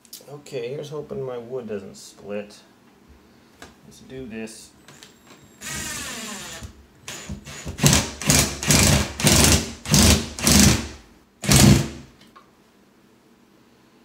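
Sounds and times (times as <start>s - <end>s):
driver trigger bursts: 5.6s - 12.0s.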